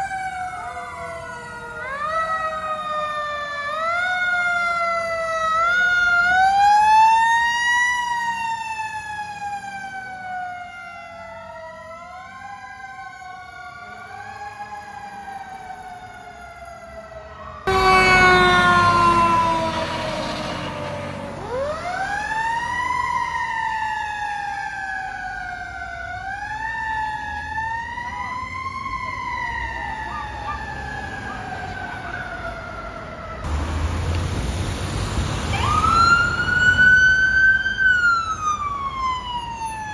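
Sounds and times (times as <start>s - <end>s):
fire engine sirens wailing: 0.0s - 39.9s
rough siren tone falling in pitch: 17.6s - 22.1s.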